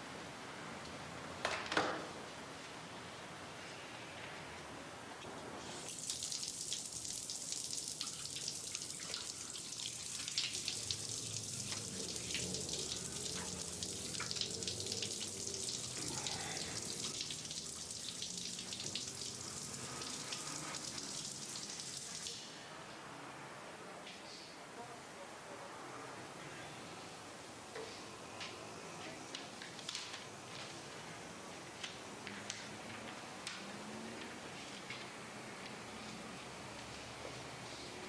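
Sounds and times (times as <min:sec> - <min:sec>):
shower water splashing on tiles: 0:05.7 - 0:22.4.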